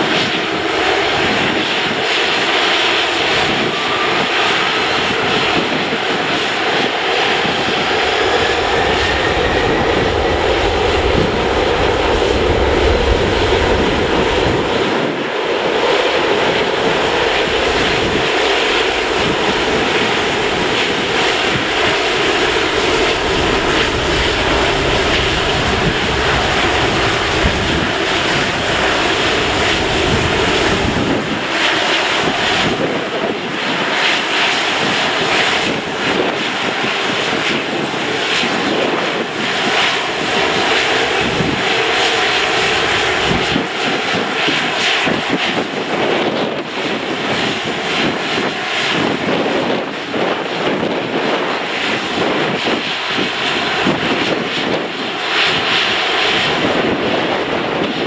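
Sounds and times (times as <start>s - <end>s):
jet engines whining: 0.0s - 58.0s
deep rumble: 3.4s - 33.4s, 40.0s - 45.3s.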